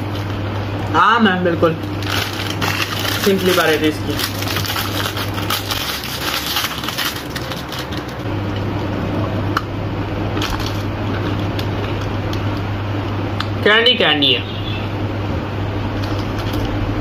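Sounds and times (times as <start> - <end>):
candy crunching as bitten: 1.8 - 8.3, 10.4 - 12.6
plastic wrapper crackling: 1.8 - 8.3, 10.4 - 12.6.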